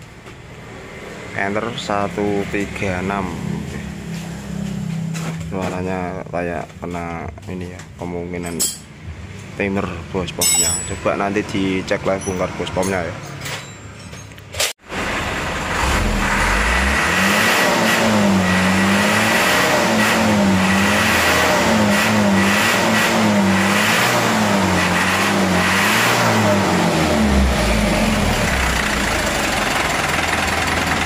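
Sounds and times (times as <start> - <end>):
diesel engine running rough: 0.2 - 5.7, 14.8 - 31.0.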